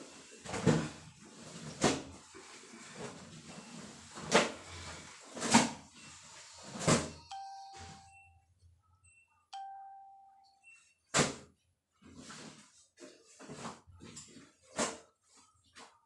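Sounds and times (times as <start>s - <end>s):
chime-like ringing tones: 7.2s - 10.9s.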